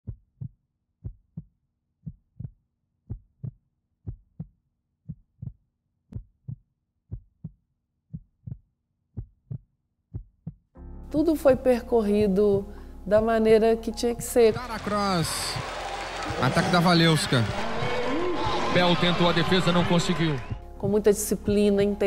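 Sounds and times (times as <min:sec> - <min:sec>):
slow heartbeat: 0:00.0 - 0:04.5, 0:06.2 - 0:10.7.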